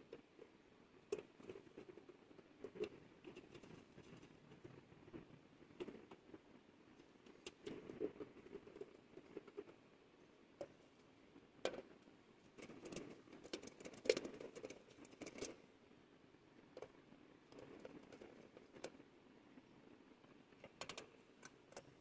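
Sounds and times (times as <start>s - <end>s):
light rustles and clicks: 10.6s - 15.6s.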